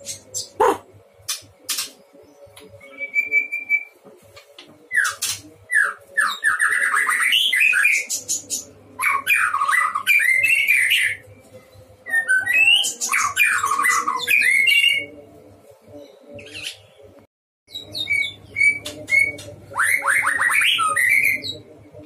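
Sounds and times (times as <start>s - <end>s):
bird singing: 4.9s - 11.3s, 12.0s - 15.2s, 17.7s - 21.7s.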